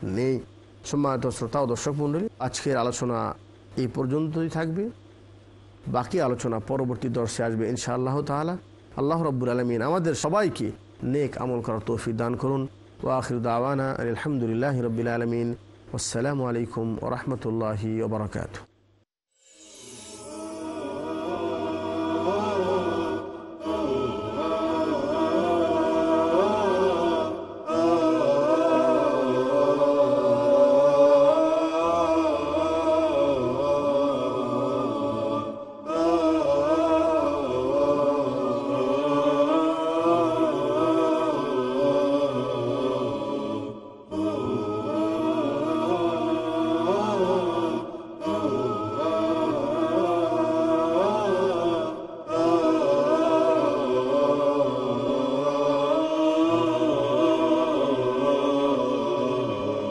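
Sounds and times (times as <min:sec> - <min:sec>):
steady low hum: 0:00.0 - 0:59.9
chanted vocal melody: 0:19.4 - 0:59.9.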